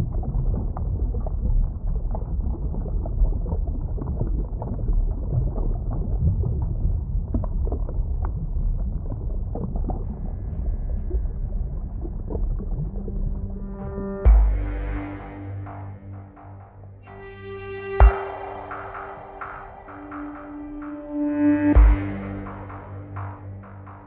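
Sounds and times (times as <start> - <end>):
crackling bubbles: 0.0 - 10.3
underwater rumble: 0.0 - 24.0
faint sustained musical tones: 13.0 - 24.0.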